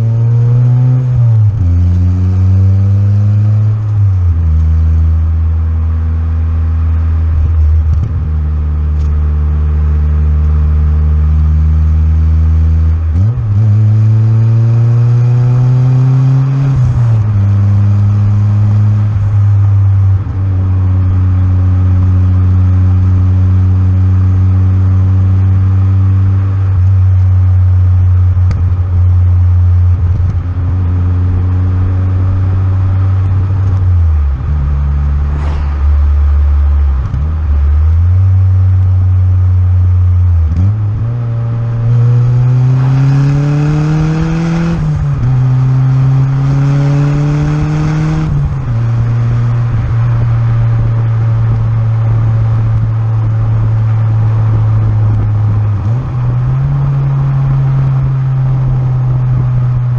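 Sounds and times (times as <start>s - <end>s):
car engine and exhaust accelerating: 0.0s - 59.9s.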